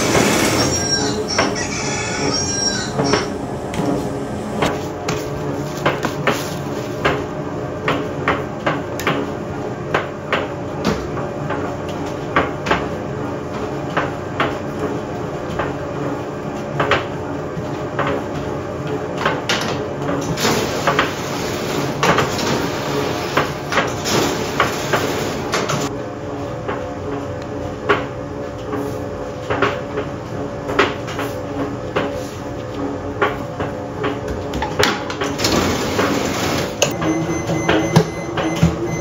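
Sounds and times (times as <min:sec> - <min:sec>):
trays and utensils clattering: 0:00.0 - 0:04.0
machine hum: 0:00.0 - 0:39.0.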